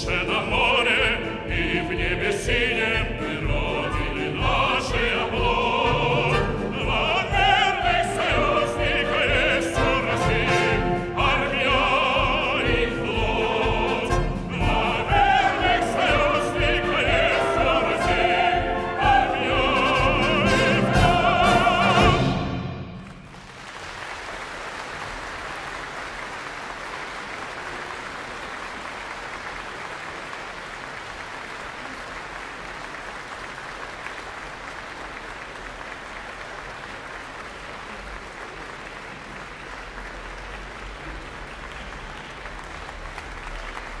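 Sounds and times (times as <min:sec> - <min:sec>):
audience applauding: 0:22.9 - 0:44.0.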